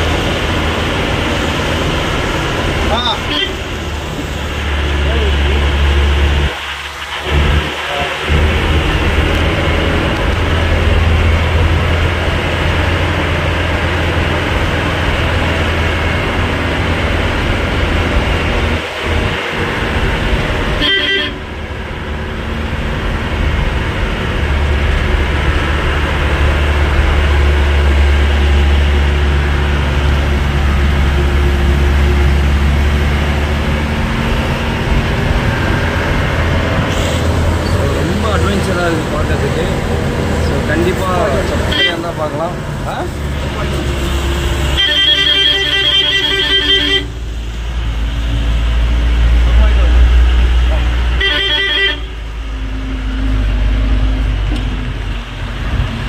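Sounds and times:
coach engine droning: 0:00.0 - 0:56.0
road noise: 0:00.0 - 0:56.0
horn toot: 0:20.8 - 0:21.5, 0:44.1 - 0:47.2, 0:51.1 - 0:52.3.

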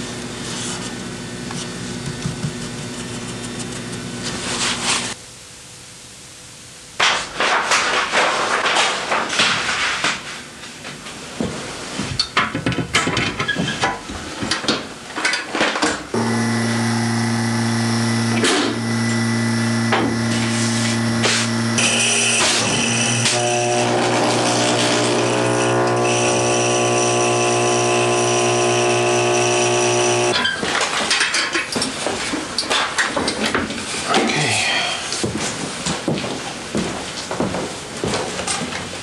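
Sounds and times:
electric motor hum: 0:16.1 - 0:30.4.

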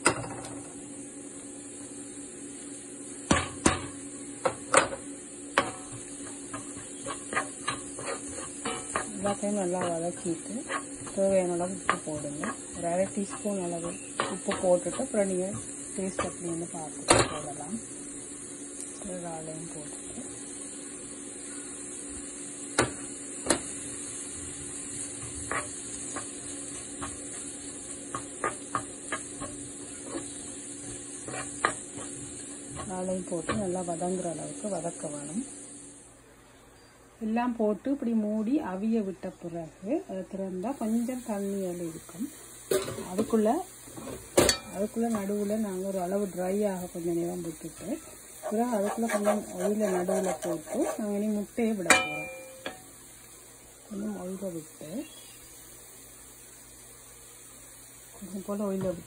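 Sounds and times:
utensils knocking on frying pan: 0:00.0 - 0:00.6, 0:03.2 - 0:17.6, 0:22.7 - 0:23.8, 0:24.4 - 0:33.9, 0:44.0 - 0:45.4, 0:51.8 - 0:52.9
food sizzling: 0:00.0 - 0:36.5, 0:37.4 - 0:59.0
sharp knocks on pan: 0:03.3 - 0:05.0.

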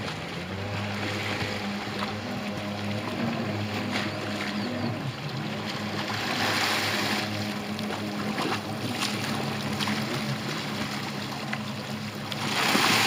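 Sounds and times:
jet ski engine humming: 0:00.0 - 0:13.0.

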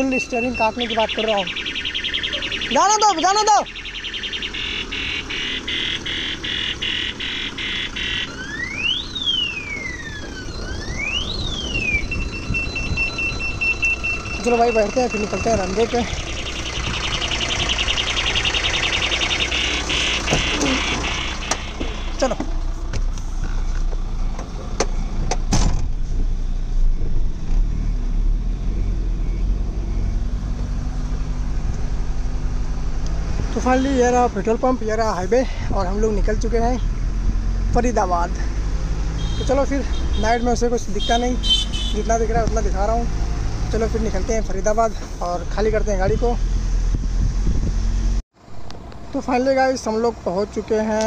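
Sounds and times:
siren wail: 0:00.0 - 0:22.5
truck reversing alarm beeping: 0:00.0 - 0:22.8, 0:27.6 - 0:31.5, 0:38.3 - 0:45.9
truck engine running low: 0:00.0 - 0:51.0.

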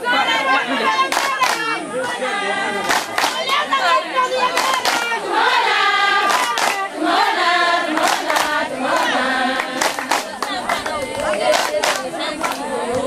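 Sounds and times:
women and children chanting: 0:00.0 - 0:13.0
hand claps: 0:01.1 - 0:01.7, 0:02.8 - 0:03.6, 0:04.5 - 0:05.1, 0:06.2 - 0:06.8, 0:08.0 - 0:12.6.

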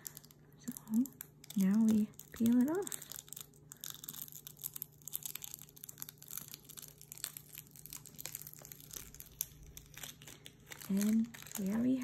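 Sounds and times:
foil crinkling as peeled: 0:00.0 - 0:12.0.

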